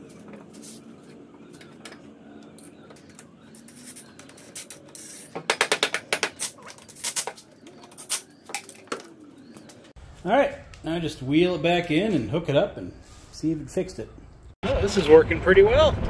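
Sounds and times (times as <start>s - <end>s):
handling noises: 0.0s - 10.0s.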